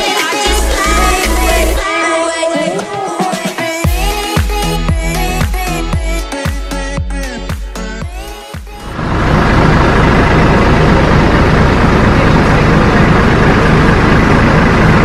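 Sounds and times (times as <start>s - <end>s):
speedboat engine roar: 0.0s - 1.8s, 8.2s - 15.0s.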